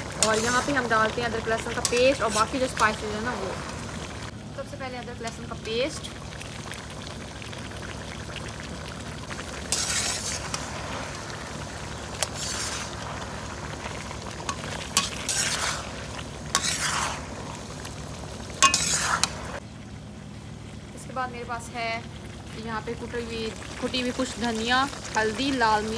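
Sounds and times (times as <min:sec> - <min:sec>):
metal spatula scraping a pan: 0:00.0 - 0:01.0, 0:01.6 - 0:03.0, 0:09.7 - 0:11.2, 0:12.2 - 0:13.3, 0:14.4 - 0:17.6, 0:18.6 - 0:19.6
food sizzling in a wok: 0:00.0 - 0:19.7, 0:22.1 - 0:25.9
spatula clinking on pan: 0:18.6 - 0:18.9.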